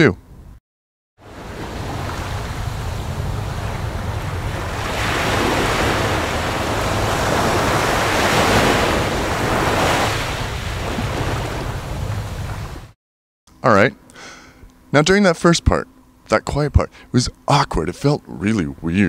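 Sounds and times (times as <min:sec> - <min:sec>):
ocean waves: 0:01.2 - 0:13.0
steady low rumble: 0:01.3 - 0:09.6.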